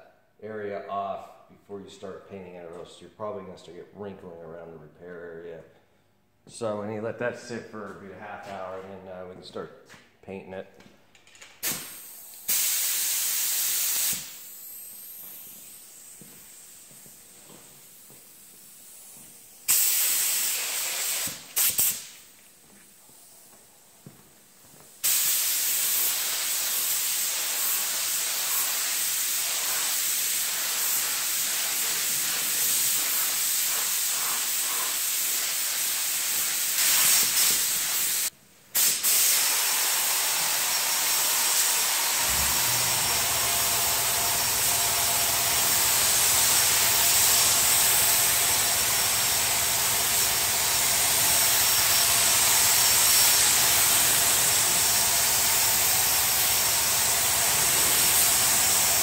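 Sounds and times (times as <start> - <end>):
paint spray gun hissing: 11.6 - 22.3, 25.0 - 59.0
steady low hum: 42.2 - 47.8.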